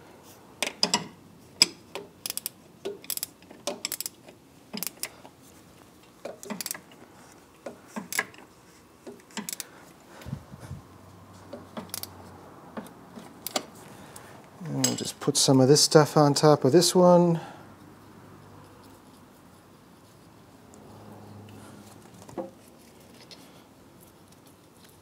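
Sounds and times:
ratcheting wrench clicking: 0:01.6 - 0:05.1, 0:06.3 - 0:07.0, 0:09.2 - 0:09.7, 0:11.8 - 0:12.1
wrench clinking against metal: 0:14.7 - 0:15.2.

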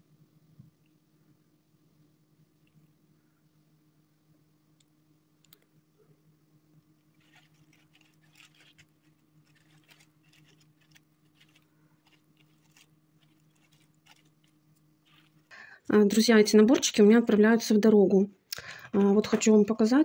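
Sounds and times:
steady low hum: 0:00.0 - 0:20.0
faint crinkling of tissue paper: 0:07.0 - 0:15.9.

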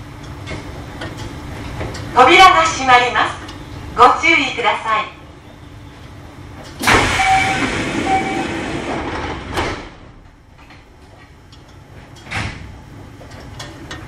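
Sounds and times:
train doors hissing: 0:06.8 - 0:10.1
sliding door thump: 0:06.8 - 0:10.3, 0:12.3 - 0:12.8.

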